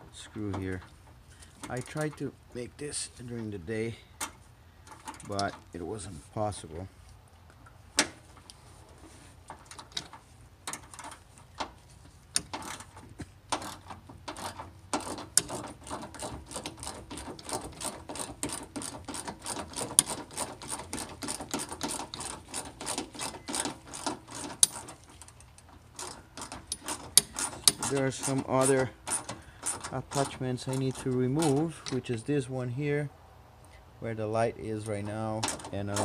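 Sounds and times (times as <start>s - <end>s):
ratchet wrench clicking: 13.6s - 25.0s, 26.0s - 30.9s.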